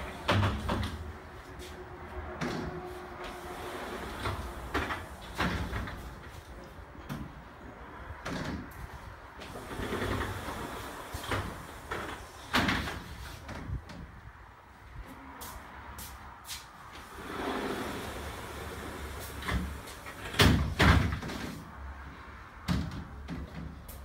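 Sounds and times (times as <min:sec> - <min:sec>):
glass panels rolling along track: 0:00.0 - 0:01.1, 0:02.4 - 0:08.7, 0:09.4 - 0:14.1, 0:17.0 - 0:21.6.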